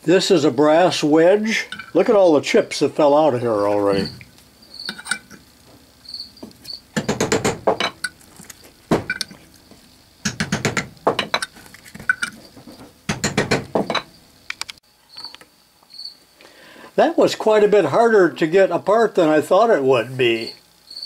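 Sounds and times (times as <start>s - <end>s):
hammer tapping metal wedge: 10.2s - 11.5s.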